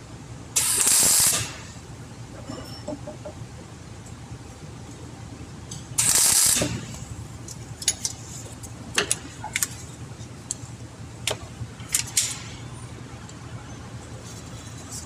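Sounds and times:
welding arc crackling: 0:00.6 - 0:01.8, 0:06.0 - 0:07.1.

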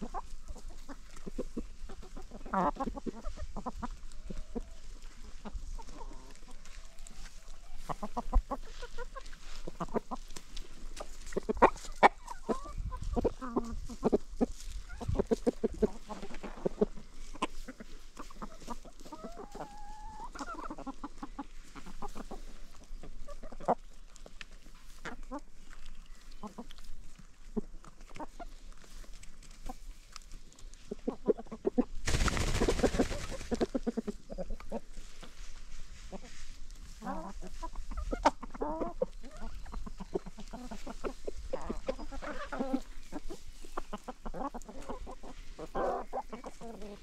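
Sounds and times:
chickens clucking: 0:00.0 - 0:47.0.

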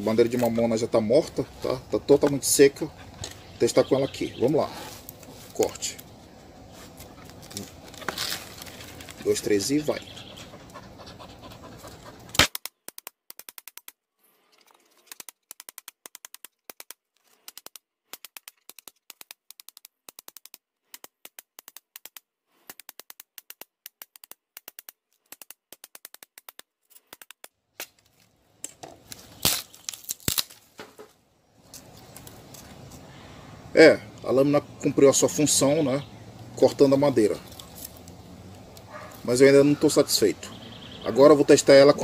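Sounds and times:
machete chopping stick: 0:12.3 - 0:13.9
rapid clicks: 0:15.1 - 0:27.5.

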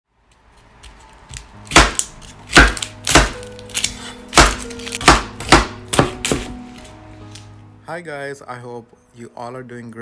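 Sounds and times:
knife chopping on wooden board: 0:00.8 - 0:06.7.

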